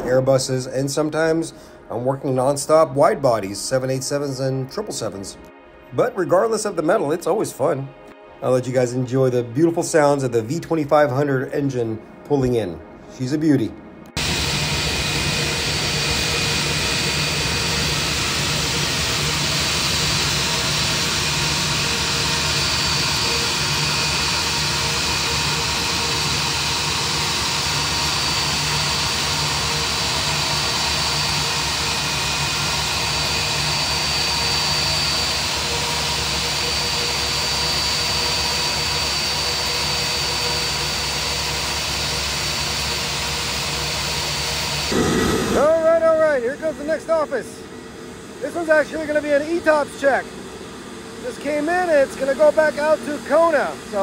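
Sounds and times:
high steady whine: 0:14.0 - 0:54.0
jet engine running: 0:14.1 - 0:54.0
rush of air: 0:44.9 - 0:46.2.

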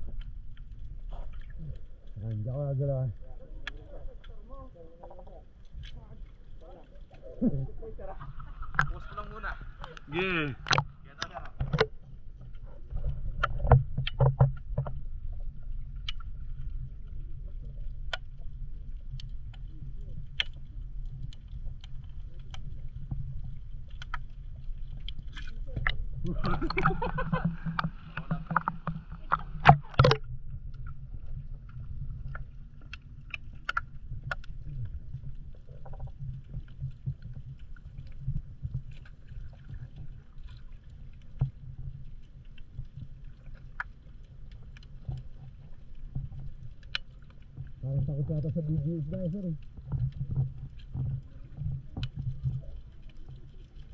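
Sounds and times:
muffled underwater rumble: 0:00.0 - 0:53.9
muffled voice: 0:06.6 - 0:08.2, 0:47.8 - 0:49.6
sharp clicks and pops: 0:08.7 - 0:09.1, 0:09.8 - 0:12.0, 0:13.0 - 0:15.0, 0:16.0 - 0:16.4, 0:19.1 - 0:23.1, 0:23.8 - 0:38.2, 0:42.4 - 0:48.1.

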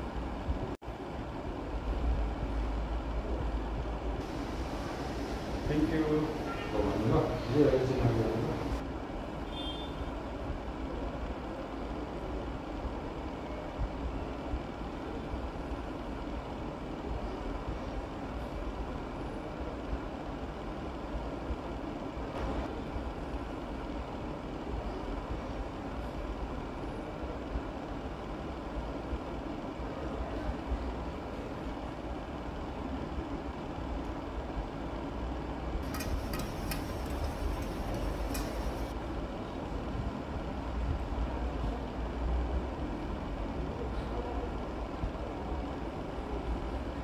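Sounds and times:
low machinery rumble: 0:00.0 - 0:08.9, 0:35.8 - 0:44.9.

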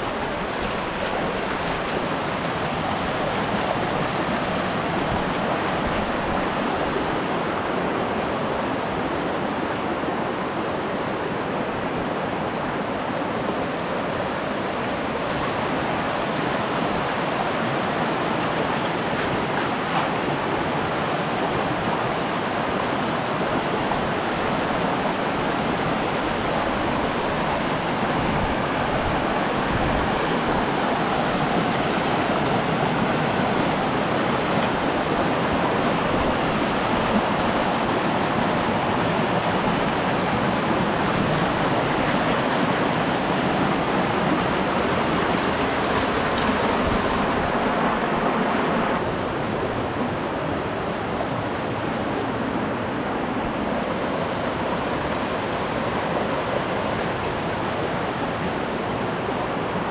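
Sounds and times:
creek rushing over rocks: 0:00.0 - 0:59.9.

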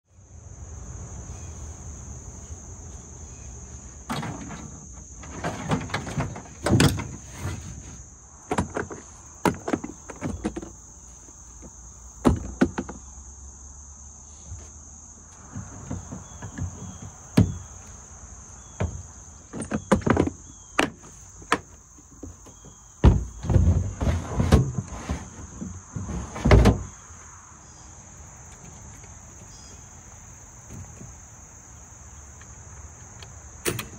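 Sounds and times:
high-pitched insect chorus: 0:00.1 - 0:33.9
irregular knocks and clunks: 0:04.0 - 0:10.8, 0:11.6 - 0:13.0, 0:15.4 - 0:17.8, 0:18.6 - 0:27.0, 0:30.6 - 0:31.3.

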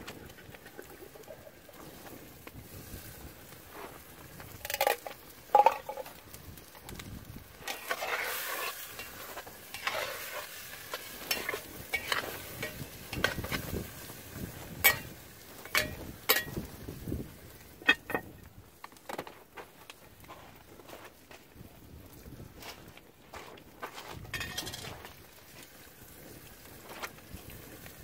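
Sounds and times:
meat sizzling: 0:00.5 - 0:19.3
metal spatula scraping a pot: 0:07.6 - 0:16.6
metal clicks on a pot: 0:14.8 - 0:16.6.

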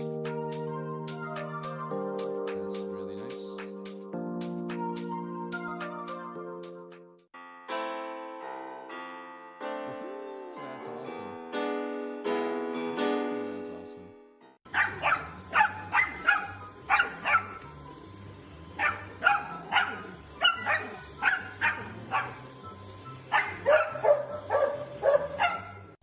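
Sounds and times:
piano music: 0:00.0 - 0:26.0
puppy yapping: 0:14.7 - 0:17.6, 0:18.8 - 0:22.5, 0:23.3 - 0:25.8.

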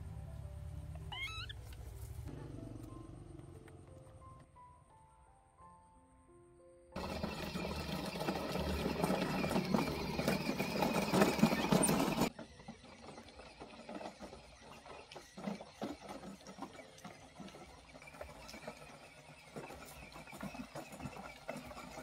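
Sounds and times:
toy car motor rattling whir: 0:07.0 - 0:22.0
wheels crunching on gravel: 0:07.0 - 0:22.0.

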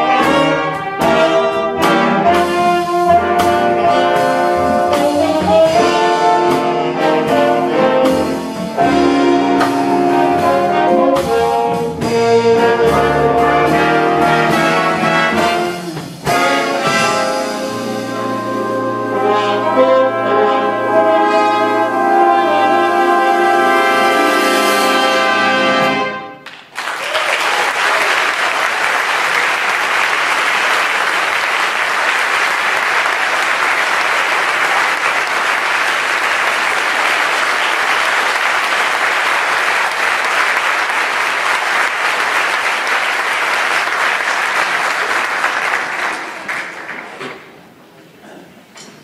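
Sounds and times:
audience applause: 0:26.4 - 0:47.6.

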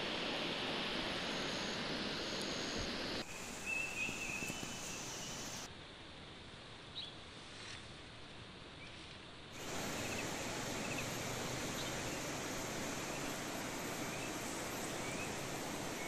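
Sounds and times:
wind rustling in trees: 0:00.0 - 0:16.0
bird chirps: 0:03.2 - 0:05.7, 0:09.6 - 0:16.0.

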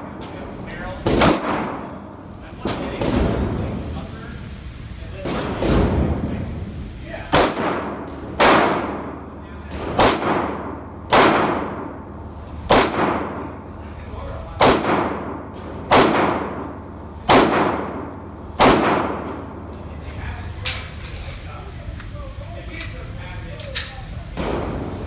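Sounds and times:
pistol shots echoing: 0:01.1 - 0:02.0, 0:07.3 - 0:09.2, 0:09.8 - 0:12.0, 0:12.6 - 0:13.6, 0:14.6 - 0:19.6.

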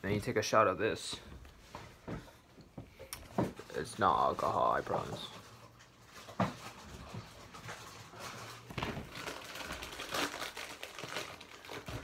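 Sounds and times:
food packaging crinkling: 0:03.6 - 0:12.0.

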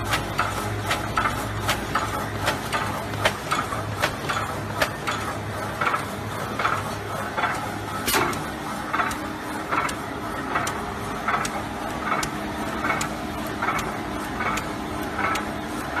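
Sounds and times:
box-forming machine humming and clacking: 0:00.0 - 0:16.0.

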